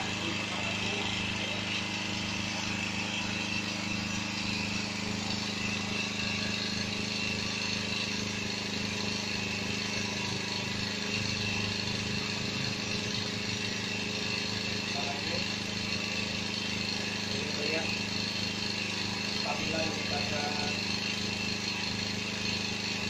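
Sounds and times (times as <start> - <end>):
generator engine hum: 0.0 - 23.0.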